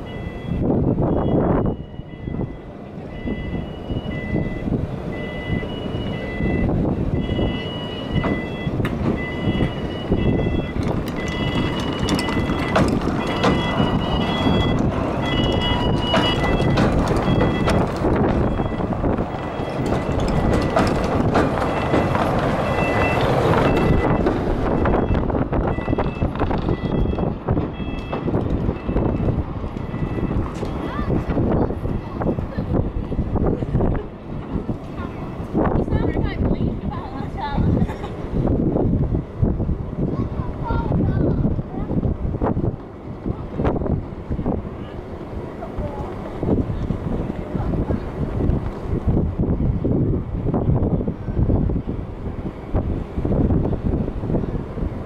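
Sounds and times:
two-tone warning beep: 0:00.0 - 0:20.8, 0:21.7 - 0:31.0
tram rumbling on rails: 0:00.0 - 0:55.0.

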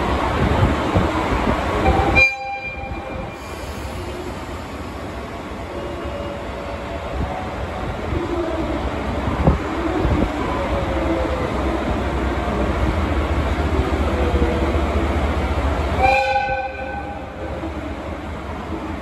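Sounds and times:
locomotive horn blast: 0:01.8 - 0:03.0, 0:16.0 - 0:17.2.

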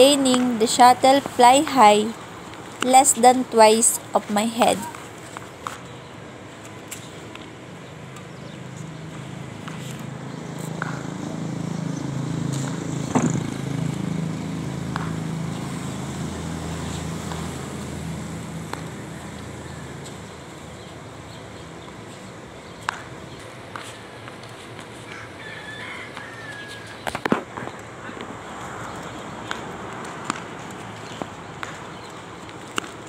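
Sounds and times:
vehicle engine humming: 0:00.0 - 0:24.9
racket tapping shuttlecock: 0:09.2 - 0:11.1, 0:14.9 - 0:15.3, 0:17.2 - 0:17.8, 0:22.8 - 0:25.2, 0:28.9 - 0:33.0.

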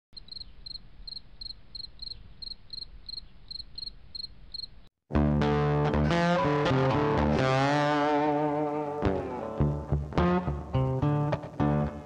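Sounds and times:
crickets chirping: 0:00.2 - 0:04.9
loud guitar music: 0:05.1 - 0:12.0.

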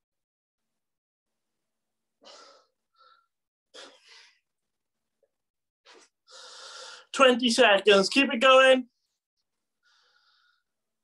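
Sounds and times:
person breathing hard: 0:06.0 - 0:07.1, 0:09.8 - 0:10.8.

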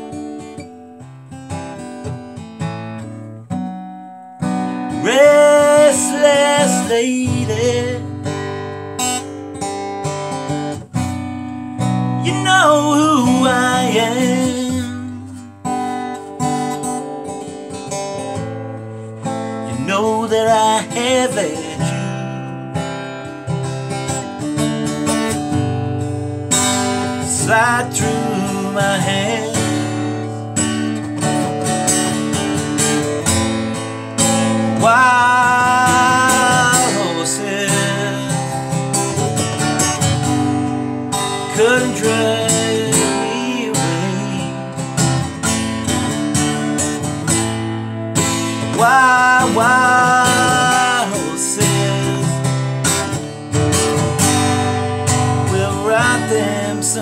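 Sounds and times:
acoustic guitar: 0:00.0 - 0:57.0
man singing: 0:04.9 - 0:08.4, 0:12.0 - 0:15.6, 0:19.6 - 0:22.6, 0:27.0 - 0:30.8, 0:34.2 - 0:39.4, 0:41.1 - 0:45.2, 0:48.3 - 0:53.2, 0:55.1 - 0:57.0.

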